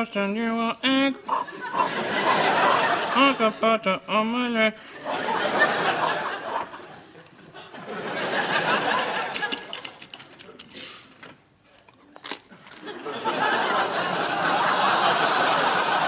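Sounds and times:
studio audience laughing: 1.3 - 3.8, 4.8 - 9.9, 12.8 - 16.0
crunch of biting toast: 12.1 - 12.9.

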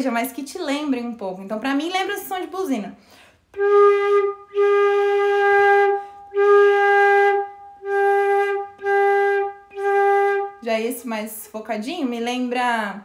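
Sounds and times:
flute hollow held notes: 3.5 - 10.6.

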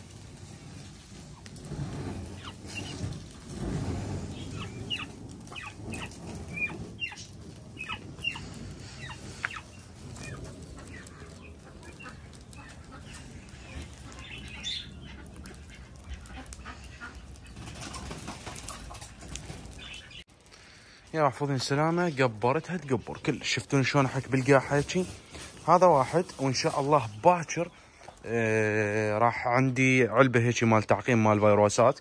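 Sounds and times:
birds flapping wings: 0.0 - 20.2.

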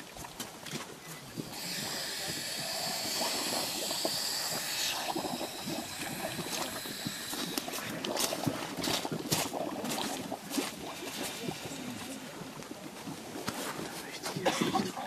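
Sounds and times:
air hissing from scuba gear: 1.2 - 8.8, 9.5 - 12.3.

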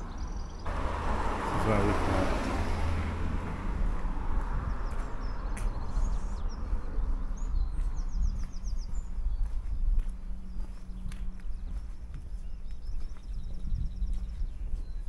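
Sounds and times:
small birds chirping: 0.0 - 0.7, 3.4 - 15.0
steady low rumble: 2.8 - 15.0.

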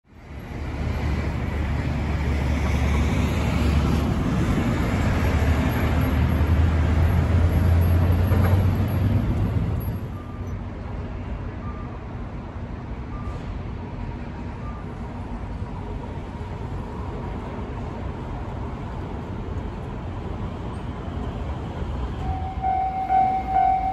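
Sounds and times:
train rumbling past: 0.2 - 23.9
faint beeping: 22.2 - 23.9.

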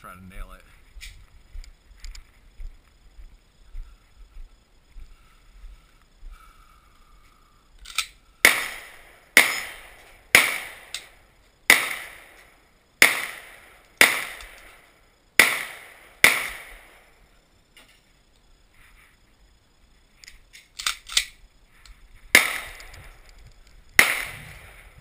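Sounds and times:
gunshots with echo: 8.4 - 10.9, 11.7 - 12.4, 13.0 - 14.7, 15.4 - 17.0, 22.3 - 23.0, 24.0 - 25.0.

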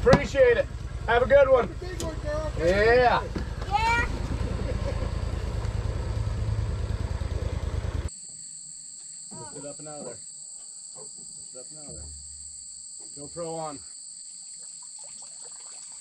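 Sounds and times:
boat motor throbbing: 0.0 - 8.1
high-pitched insect drone: 5.2 - 16.0.

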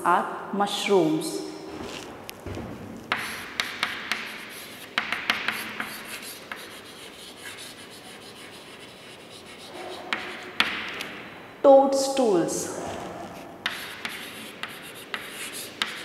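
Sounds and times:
chalk writing on a chalkboard: 3.1 - 11.0, 13.0 - 16.0.

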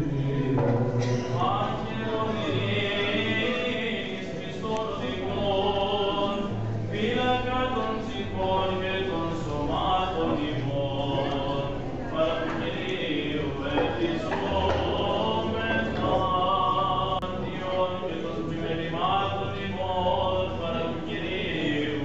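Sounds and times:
low held drone note: 0.0 - 3.2
men singing chant: 0.0 - 22.0.

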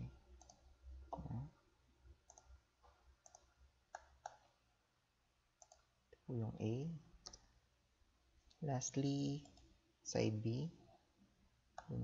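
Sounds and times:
computer mouse clicks: 0.4 - 1.3, 2.2 - 4.6, 5.6 - 5.9, 7.2 - 7.5, 11.8 - 12.0
low hum of a voice: 1.2 - 1.5.

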